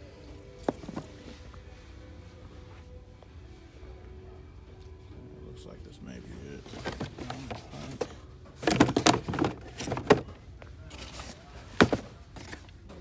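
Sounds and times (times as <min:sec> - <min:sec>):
cardboard rustling: 0:06.6 - 0:10.3, 0:10.9 - 0:12.7
cardboard boxes knocking: 0:08.6 - 0:10.3, 0:11.7 - 0:12.6.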